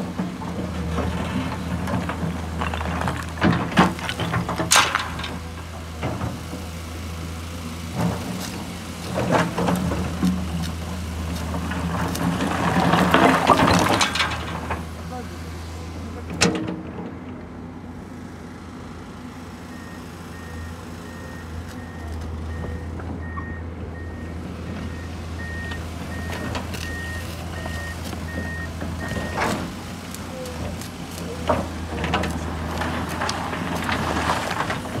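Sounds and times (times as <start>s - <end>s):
diesel engine running: 0.0s - 35.0s
bucket scraping rocks: 0.8s - 5.4s, 9.2s - 15.0s, 30.5s - 35.0s.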